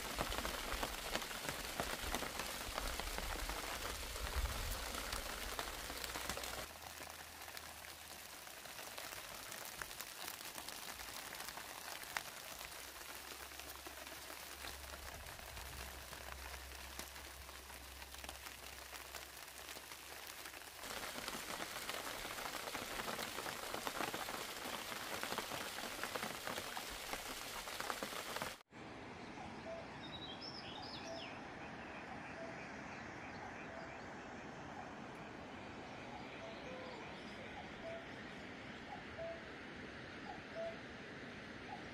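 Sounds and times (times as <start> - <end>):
steady rain falling: 0.0 - 28.6.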